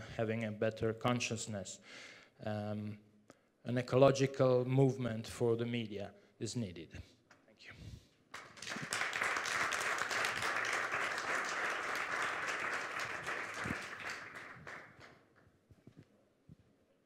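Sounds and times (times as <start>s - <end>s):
audience applauding: 8.4s - 15.2s.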